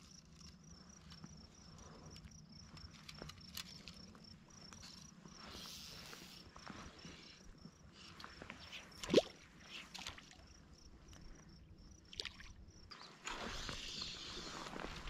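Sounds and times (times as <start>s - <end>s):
small ticks: 0.0s - 6.7s, 8.0s - 11.6s.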